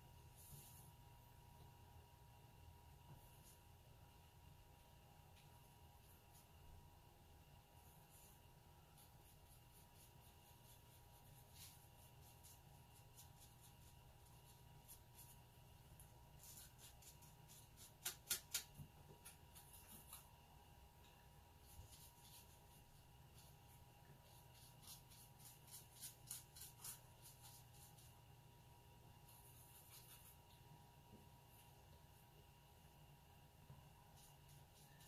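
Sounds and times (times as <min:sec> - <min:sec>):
brush strokes on paper: 0:00.0 - 0:01.3, 0:07.7 - 0:18.0, 0:21.5 - 0:28.3, 0:29.2 - 0:30.6, 0:33.8 - 0:35.0.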